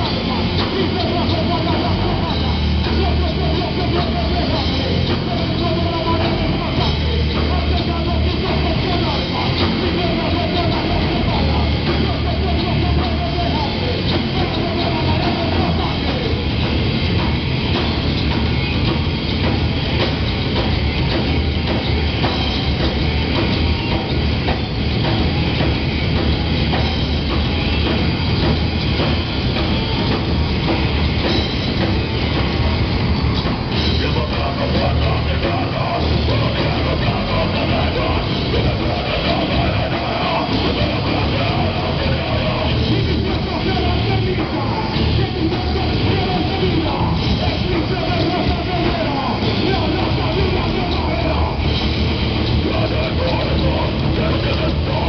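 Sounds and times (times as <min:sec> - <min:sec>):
person singing into a microphone: 0:00.0 - 0:16.5, 0:33.8 - 0:51.7, 0:52.6 - 0:55.0
bass guitar: 0:00.0 - 0:55.0
drum kit: 0:00.0 - 0:55.0
electric guitars: 0:00.0 - 0:55.0.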